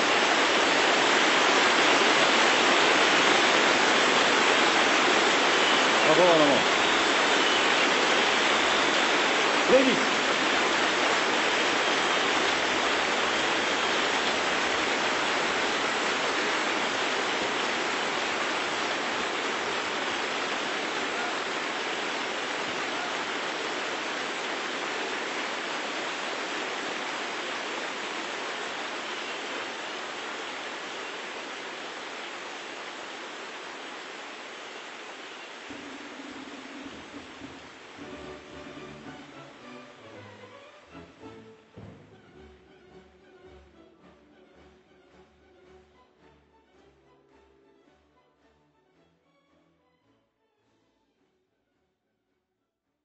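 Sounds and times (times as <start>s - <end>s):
large audience applauding: 0.0s - 25.0s, 35.7s - 40.0s.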